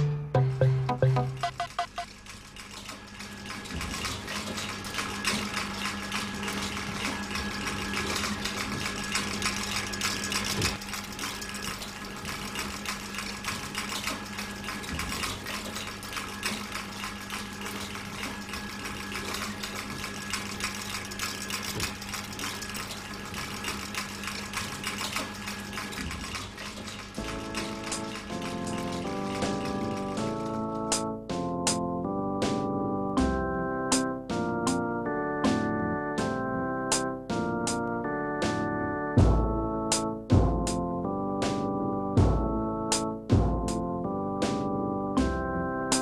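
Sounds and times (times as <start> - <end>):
mechanical clicking and rattling: 1.4 - 31.1.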